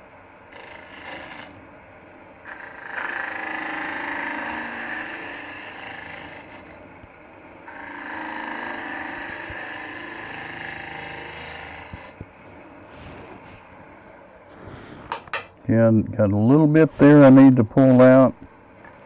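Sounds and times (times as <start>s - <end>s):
wood lathe running: 0.5s - 1.6s, 2.4s - 6.8s, 7.4s - 12.7s.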